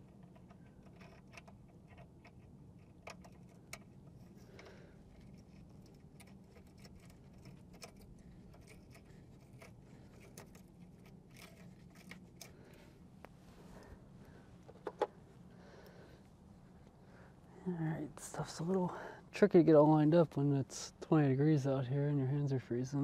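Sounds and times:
low steady hum: 0.0 - 23.0
metal parts clicking and scraping: 0.1 - 12.8.

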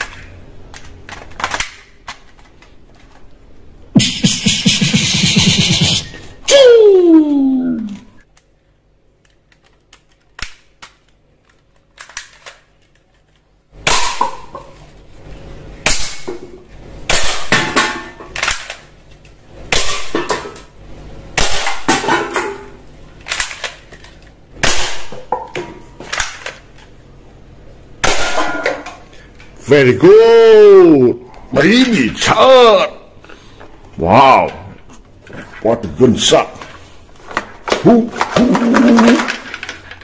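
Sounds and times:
toy gun firing sharp shots: 13.8 - 14.4, 17.1 - 17.7, 21.4 - 22.0, 24.6 - 25.1, 28.0 - 28.6.

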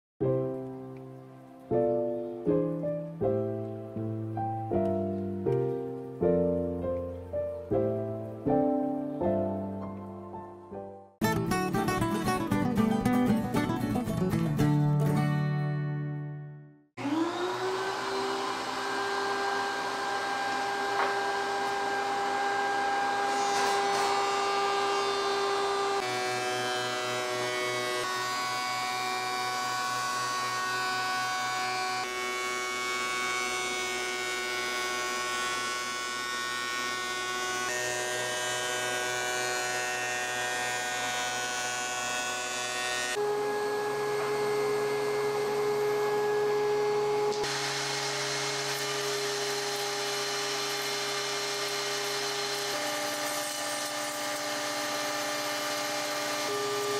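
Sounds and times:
thickness planer motor whine: 17.0 - 56.9.

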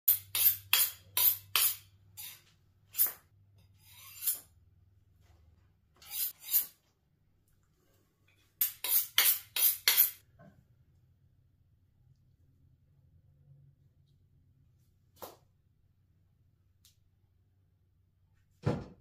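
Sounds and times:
knife scraping on sharpening steel: 0.1 - 4.6, 6.0 - 6.8, 8.6 - 10.2.

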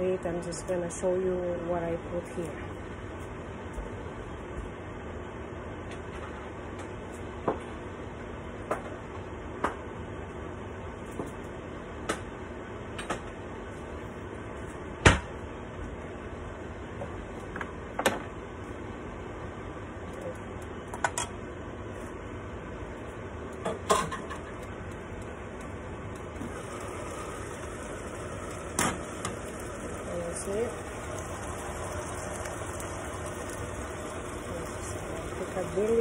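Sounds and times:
meat simmering hiss: 26.4 - 36.0.

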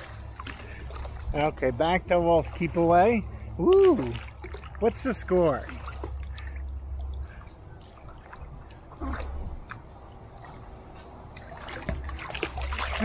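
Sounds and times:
water sloshing and trickling: 0.0 - 13.0.

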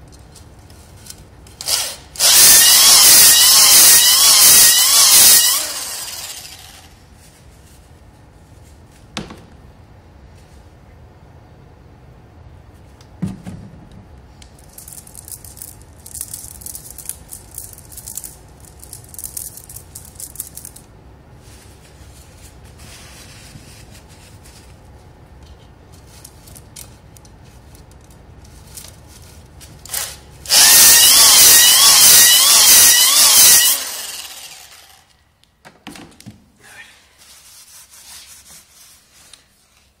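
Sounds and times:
drill motor whine: 1.7 - 6.8, 30.5 - 35.0.

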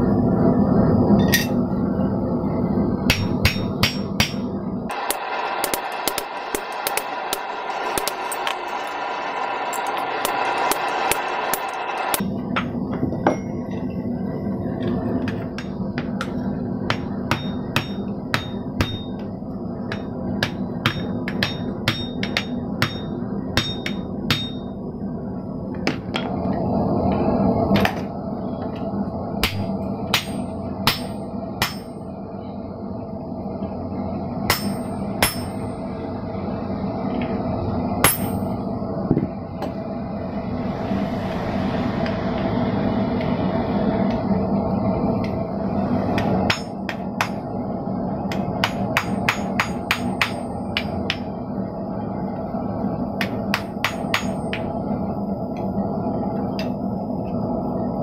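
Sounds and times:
steady rushing noise: 0.0 - 58.0
hammer ringing on steel plate: 3.1 - 8.6, 16.9 - 19.2, 19.9 - 24.8, 29.4 - 32.0, 34.5 - 35.8, 38.0 - 38.5, 46.5 - 47.3, 48.6 - 51.2, 53.6 - 54.7.

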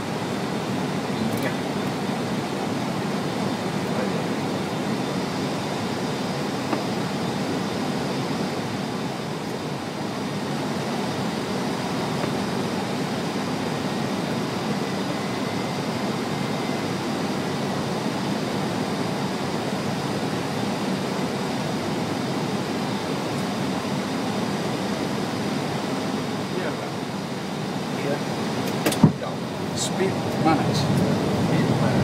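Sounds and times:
faint high whine: 0.0 - 32.0
rushing aircraft cabin noise: 0.0 - 32.0.

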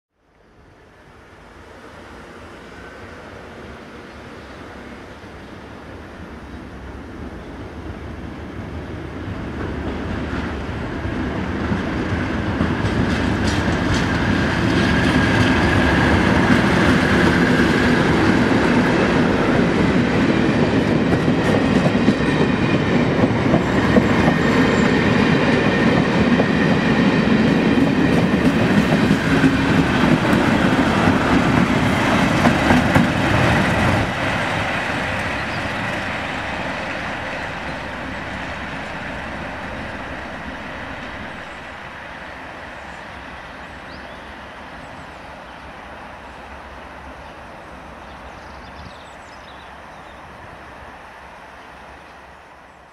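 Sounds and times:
diesel locomotive engine: 0.3 - 52.9
train wheels clattering over rail joints: 11.4 - 18.8, 19.9 - 36.6.

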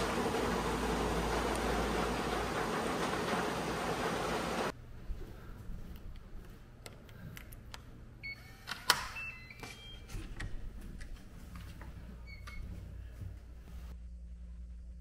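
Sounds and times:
card reader beep: 8.2 - 10.1.

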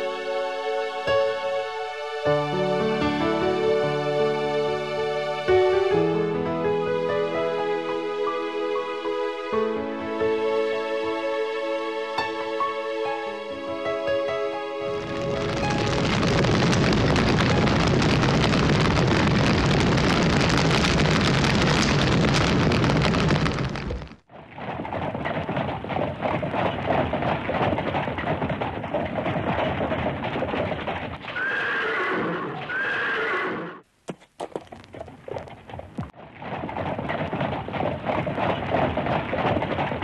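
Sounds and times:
horse neighing: 31.3 - 33.8
horse hoofbeats: 34.1 - 40.0.

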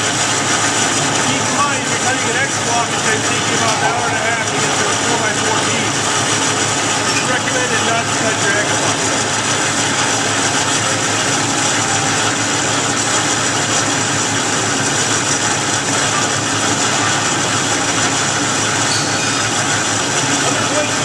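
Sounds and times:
bandsaw cutting metal: 18.8 - 20.9.

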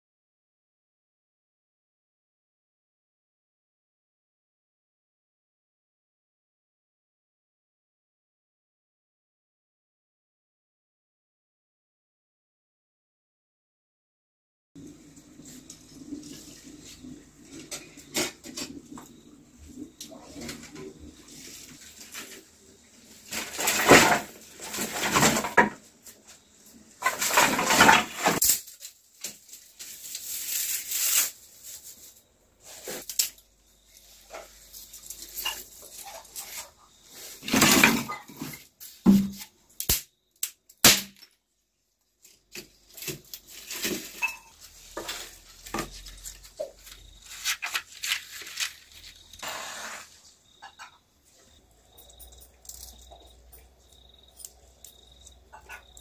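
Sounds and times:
sticks rustling and crackling: 27.0 - 37.8, 42.2 - 49.4.

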